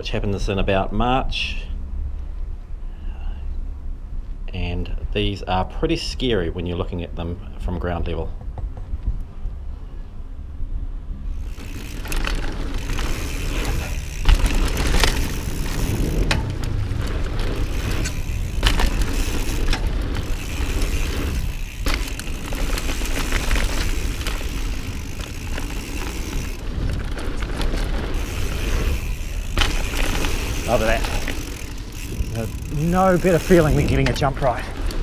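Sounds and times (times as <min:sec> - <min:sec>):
wind buffeting microphone: 0:10.6 - 0:35.0
bike rattling: 0:11.1 - 0:35.0
bike tyres rolling on dirt: 0:11.2 - 0:35.0
bike landing knocks: 0:11.6 - 0:35.0.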